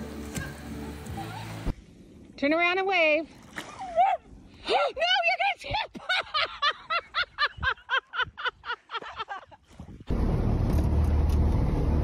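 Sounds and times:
person laughing hard: 5.8 - 9.6
wind noise: 7.2 - 8.7, 9.3 - 10.2
boat engine rumble: 9.2 - 12.0.

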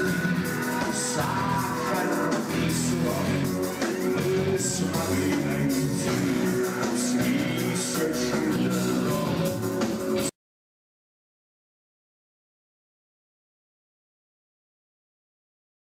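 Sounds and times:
rock music with electric guitar: 0.0 - 10.3.

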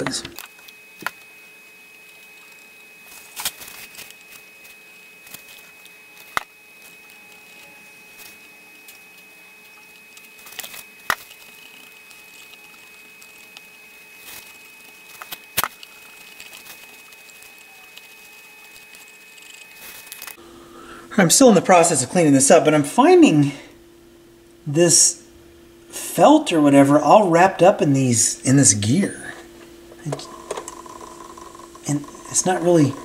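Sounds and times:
faint steady hum: 0.0 - 33.0
cotton swab rubbing mechanism: 1.9 - 20.4, 30.0 - 33.0
small rustles: 1.9 - 20.4.

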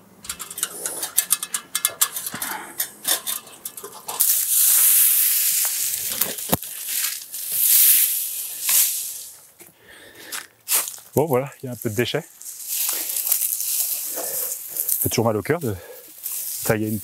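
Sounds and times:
dry cuttings rustling when dragged: 0.2 - 9.6, 10.7 - 17.0
dry branches crackling: 0.2 - 17.0.

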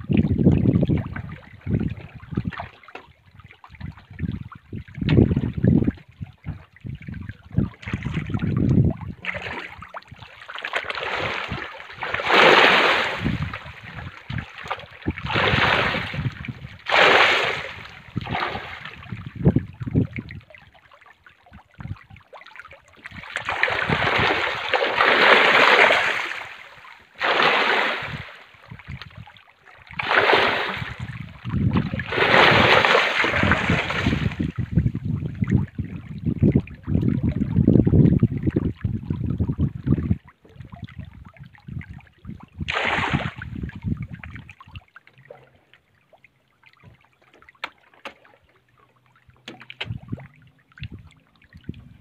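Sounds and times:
fish splashing at the surface: 9.2 - 19.2, 22.0 - 28.4, 29.9 - 34.6, 42.6 - 43.8.

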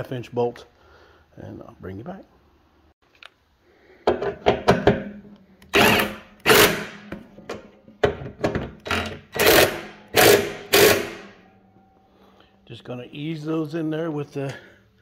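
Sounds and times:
impact wrench hammering: 4.1 - 11.4.

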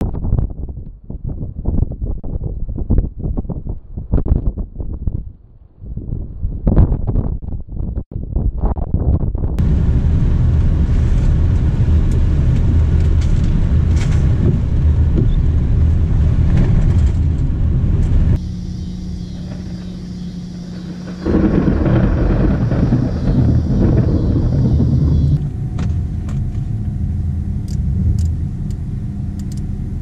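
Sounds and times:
vehicle rumbling on dirt road: 9.6 - 30.0.

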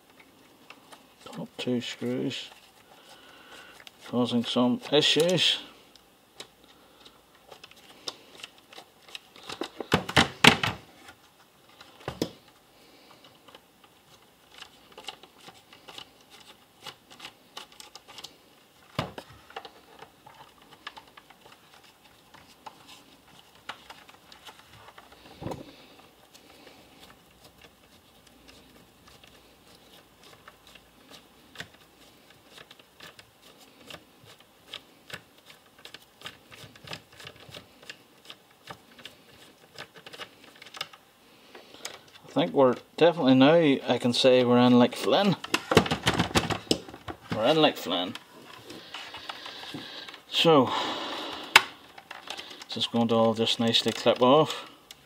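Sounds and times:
screwdriver clicks and scrapes on plastic: 13.2 - 25.2, 27.0 - 41.0.

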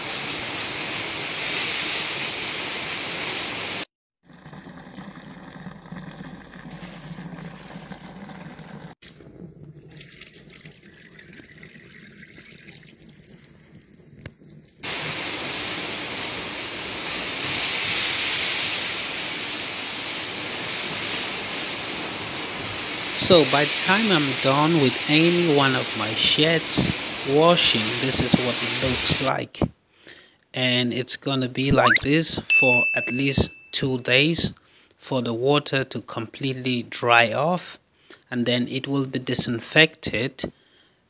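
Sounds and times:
pressure washer spraying water: 0.0 - 3.9, 14.8 - 29.3.

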